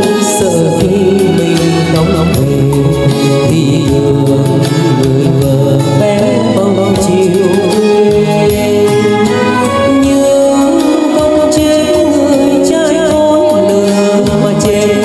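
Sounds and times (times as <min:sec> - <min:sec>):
backing track with steady beat: 0:00.0 - 0:15.0
man singing into microphone: 0:00.0 - 0:15.0.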